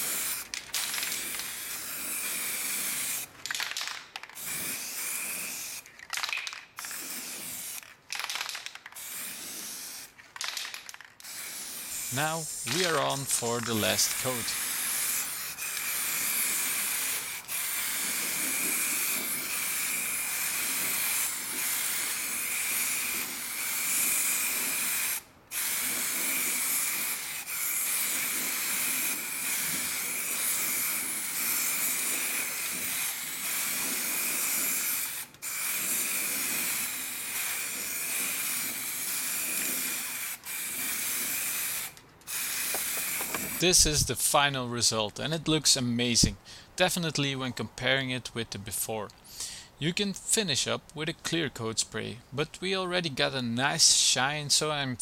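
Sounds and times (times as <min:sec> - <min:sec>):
aerosol spray paint hissing: 0:00.0 - 0:03.3, 0:04.4 - 0:05.9, 0:06.8 - 0:08.0, 0:09.0 - 0:10.2, 0:11.2 - 0:44.0.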